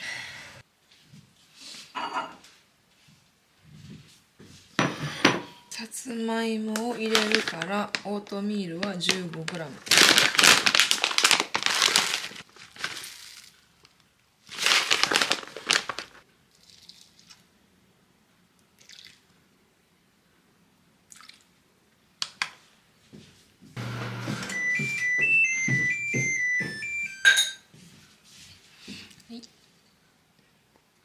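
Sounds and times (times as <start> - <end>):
oatmeal pouring rustle: 7.0 - 17.5
soft keyboard music: 23.8 - 27.5.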